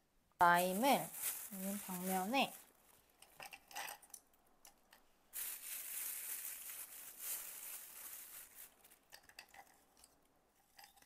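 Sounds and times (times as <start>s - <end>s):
plastic bag crinkling: 0.6s - 4.2s, 5.3s - 10.2s.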